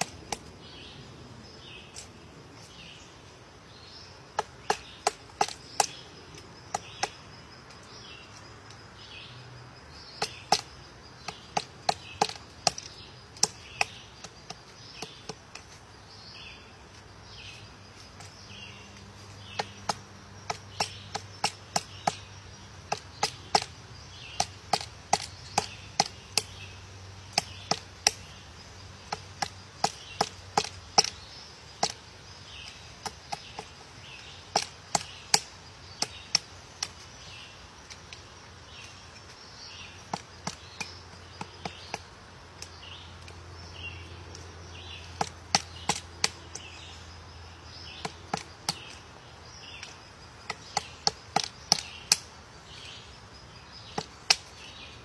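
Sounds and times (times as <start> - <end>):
woodpecker knocking on tree: 4.3 - 7.2, 10.2 - 15.8, 19.2 - 28.4, 29.0 - 37.0, 39.9 - 43.4, 44.3 - 46.7, 47.7 - 49.0, 49.6 - 52.3, 53.8 - 54.8.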